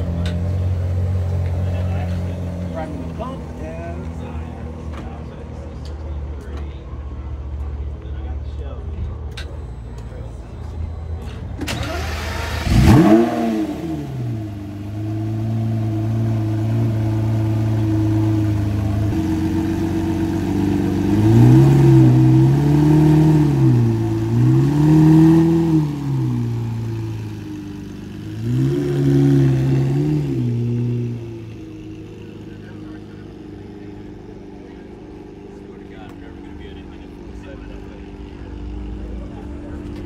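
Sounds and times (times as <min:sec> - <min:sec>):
sports car engine starting and revving: 0:11.0 - 0:40.0.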